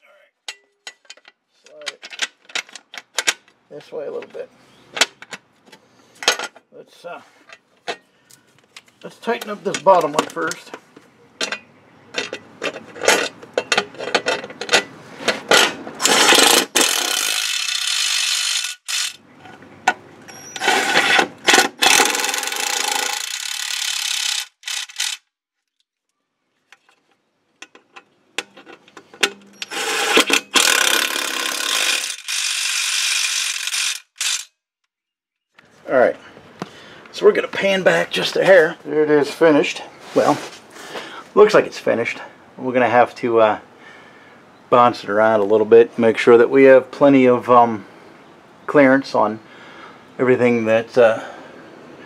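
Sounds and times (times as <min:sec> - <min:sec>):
ratchet wrench clicking: 0:16.0 - 0:19.2, 0:21.8 - 0:25.2, 0:29.5 - 0:34.5.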